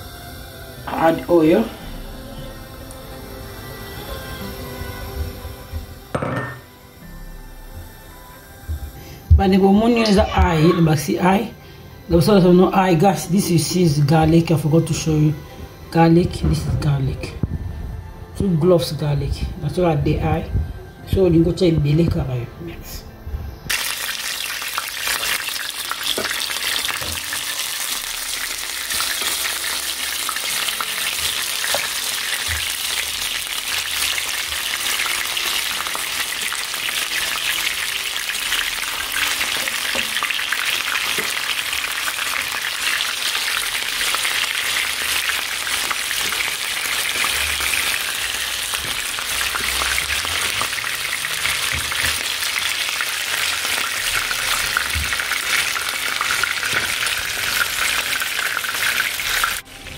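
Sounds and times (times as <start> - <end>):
chicken sizzling in hot oil: 0.0 - 7.2, 23.7 - 59.9
crackling oil spatters: 23.7 - 59.6.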